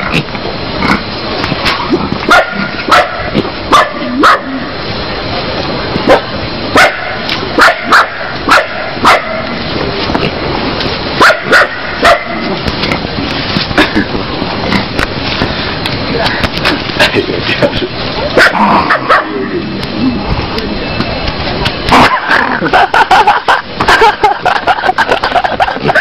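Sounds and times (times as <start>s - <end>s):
steady hiss: 0.0s - 26.0s
dog barking: 2.3s - 4.5s, 6.1s - 9.4s, 11.2s - 12.4s, 18.4s - 19.4s.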